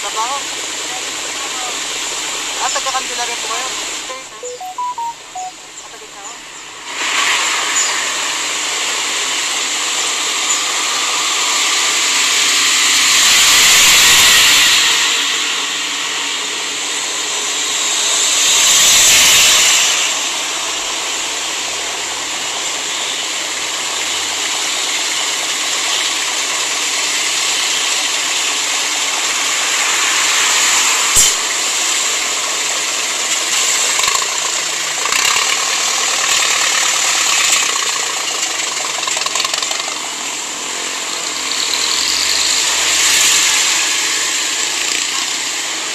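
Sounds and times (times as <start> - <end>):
traffic hiss and idling engines: 0.0 - 45.9.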